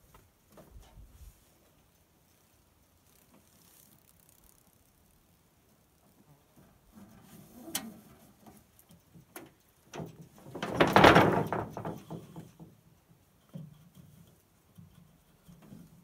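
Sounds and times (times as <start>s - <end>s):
rustling scrape: 0.8s - 1.8s, 3.0s - 4.9s, 6.8s - 8.7s
clicks and knocks in canoe: 9.0s - 12.8s.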